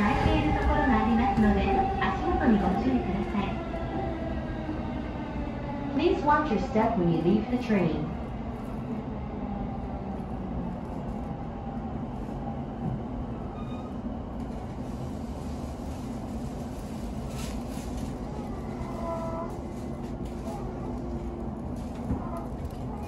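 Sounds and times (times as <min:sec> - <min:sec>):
train running rumble: 0:00.0 - 0:03.5, 0:14.3 - 0:23.0
faint train squeal: 0:13.4 - 0:14.1.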